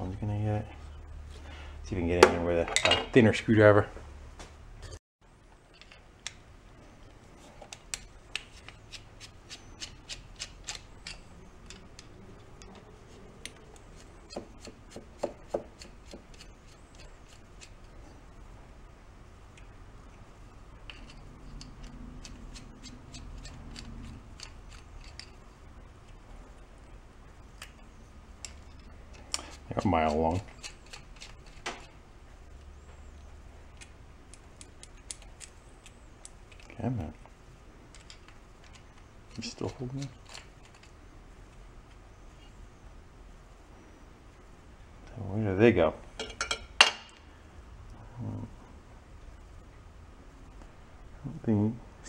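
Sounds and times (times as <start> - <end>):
screwdriver clicking on metal: 20.9 - 25.4.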